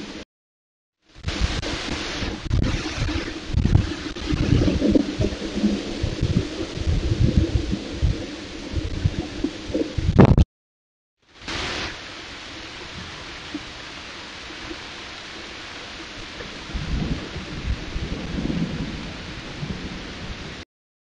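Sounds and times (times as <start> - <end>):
steady hiss: 1.0 - 10.0, 11.3 - 20.0
low rumbling thumps: 1.2 - 10.4.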